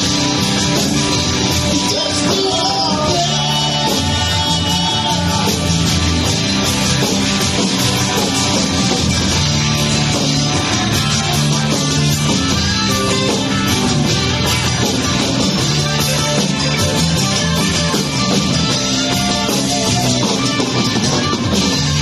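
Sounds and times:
bass guitar: 0:00.0 - 0:22.0
drum kit: 0:00.0 - 0:22.0
electric lead guitar: 0:00.0 - 0:22.0.

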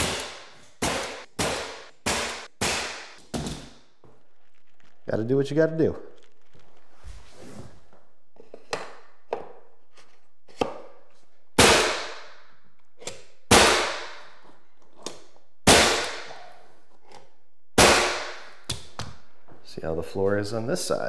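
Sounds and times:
nail gun firing: 0:00.0 - 0:03.2.

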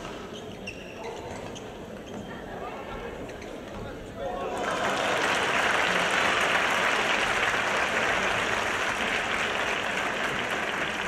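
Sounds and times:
spectators applauding: 0:04.5 - 0:11.0.

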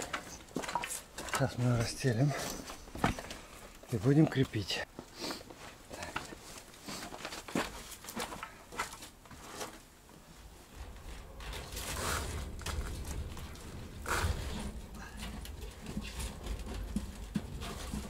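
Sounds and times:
metal mesh rustling and scraping: 0:07.8 - 0:18.0.

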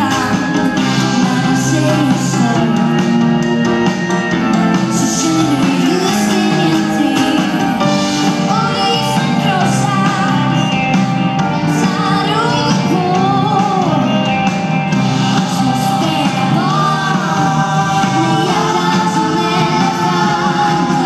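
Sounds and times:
woman singing: 0:00.0 - 0:03.2, 0:04.9 - 0:10.9, 0:11.6 - 0:14.4, 0:15.4 - 0:21.0
drums: 0:00.0 - 0:21.0
electric guitars: 0:00.0 - 0:21.0
keyboards: 0:00.0 - 0:21.0.

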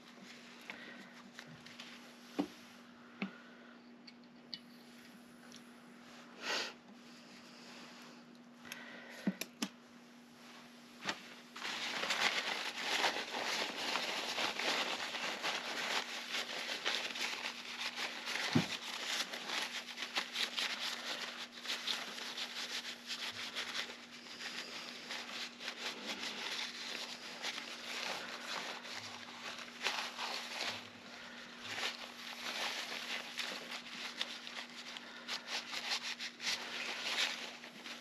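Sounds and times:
paper towel rustling on metal: 0:10.4 - 0:38.0.

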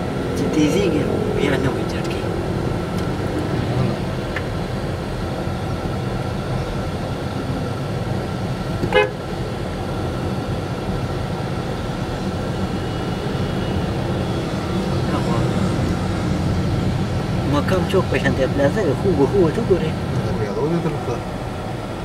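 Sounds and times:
car engine and road rumble: 0:00.0 - 0:22.0
vehicle horn toot: 0:08.9 - 0:09.2.

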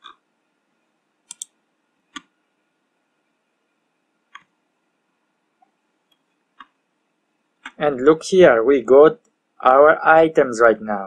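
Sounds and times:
faint steady hum: 0:00.0 - 0:11.0
mouse or key clicks: 0:01.3 - 0:01.5.

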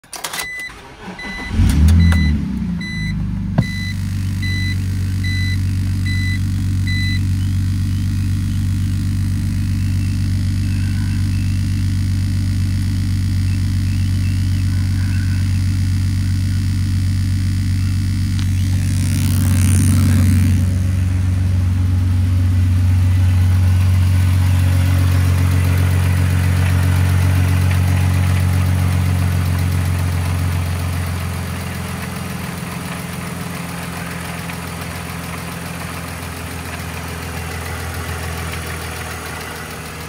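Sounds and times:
car engine starting and idling: 0:00.0 - 0:40.0
dashboard warning chime beeping: 0:00.2 - 0:07.6.

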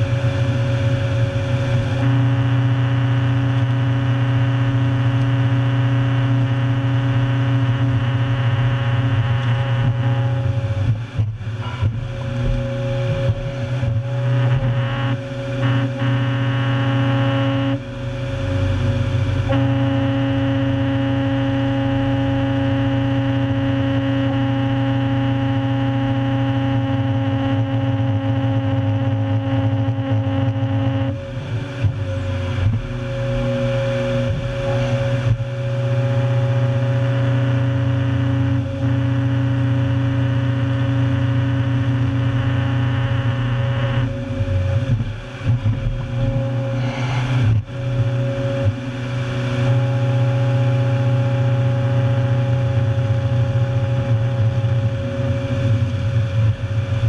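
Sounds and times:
heavy engine running under load: 0:00.0 - 0:57.0.

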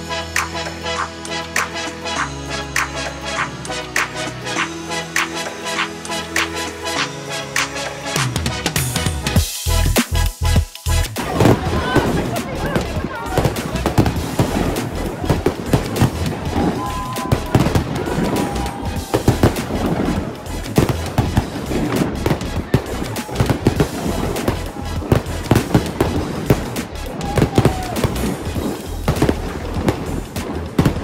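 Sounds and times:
music playing: 0:00.0 - 0:31.0
fireworks bangs and crackles: 0:11.1 - 0:31.0.

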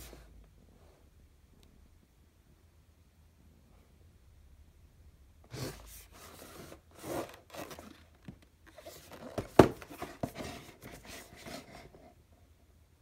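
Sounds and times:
hands rustling cardboard: 0:05.5 - 0:12.2.

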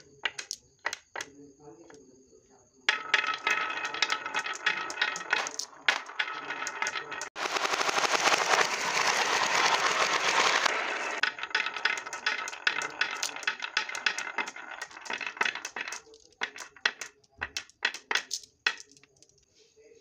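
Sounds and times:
marbles clattering together: 0:00.0 - 0:02.0, 0:02.9 - 0:19.4
marbles rolling in wooden grooves: 0:00.0 - 0:02.0, 0:02.9 - 0:19.4.

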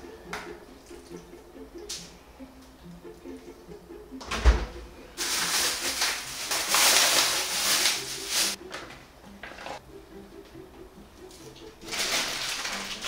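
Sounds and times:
plastic food pouch crinkling: 0:05.2 - 0:08.6, 0:11.8 - 0:13.0.

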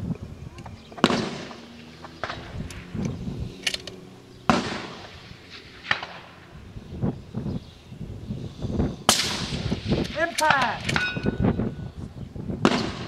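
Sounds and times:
rifle shots with echo: 0:01.0 - 0:02.9, 0:04.4 - 0:06.4, 0:09.1 - 0:11.4, 0:12.6 - 0:13.0.

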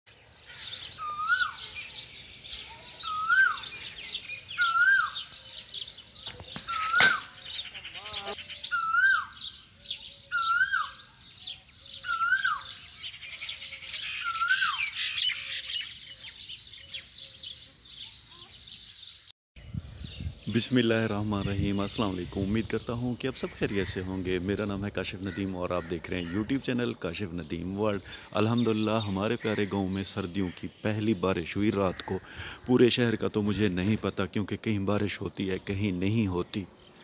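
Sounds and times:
birds chirping chorus: 0:00.1 - 0:37.0
bird rising and falling call: 0:00.4 - 0:19.3.

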